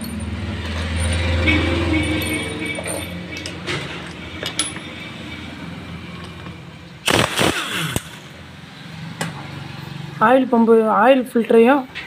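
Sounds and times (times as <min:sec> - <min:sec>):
metal clinks of loose bolts: 0:00.0 - 0:05.5
power ratchet spinning: 0:07.1 - 0:08.4.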